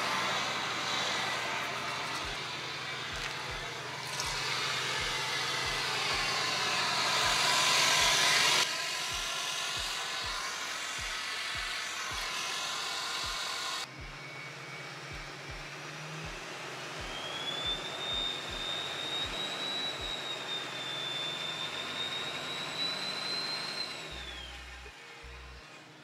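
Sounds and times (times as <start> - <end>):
diesel engine idling: 0.0 - 19.4
high wavering whistle: 0.0 - 25.6.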